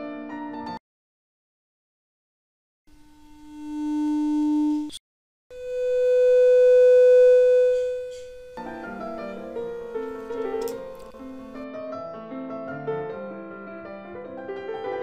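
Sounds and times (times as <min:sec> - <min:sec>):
higher steady tone: 0:02.9 - 0:11.6
background piano music: 0:08.6 - 0:15.0
click: 0:10.0 - 0:11.6.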